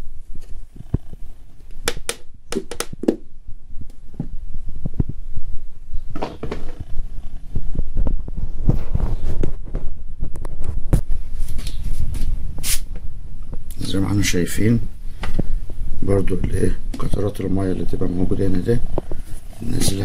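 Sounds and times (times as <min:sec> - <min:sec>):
plastic clicking and knocking: 0:01.9 - 0:03.2.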